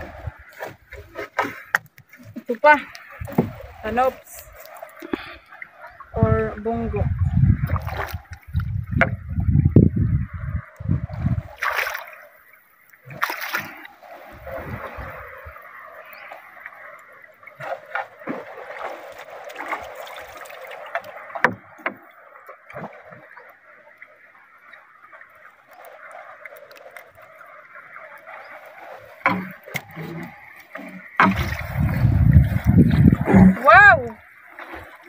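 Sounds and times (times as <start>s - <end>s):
knocks and splashes: 0.0s - 10.2s, 10.8s - 12.4s, 13.0s - 23.7s, 24.4s - 35.0s
water lapping against boat hull: 0.0s - 35.0s
low rumble: 31.3s - 33.6s.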